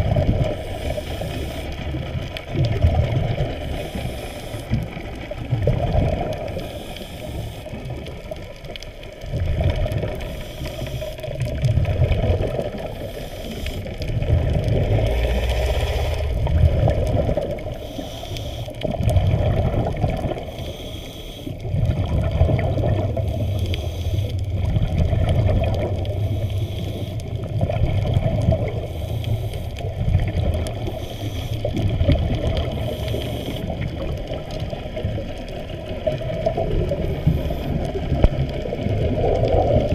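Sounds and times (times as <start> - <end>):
muffled underwater water wash: 0.0 - 39.9.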